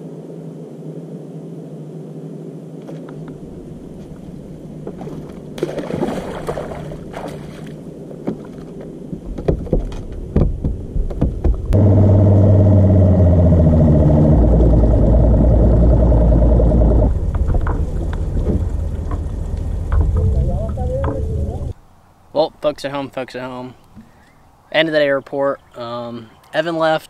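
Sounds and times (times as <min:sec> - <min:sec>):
engine droning: 0:11.6 - 0:21.8
low rumble: 0:11.6 - 0:21.8
knocks and clicks: 0:16.8 - 0:21.7.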